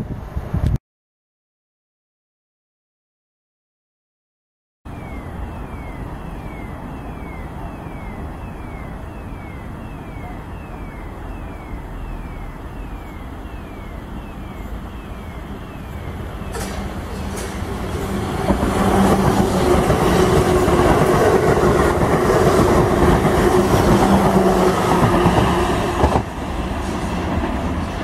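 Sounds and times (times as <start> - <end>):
high falling electronic beep: 4.9 - 17.0
electric trains rumbling: 4.9 - 28.0.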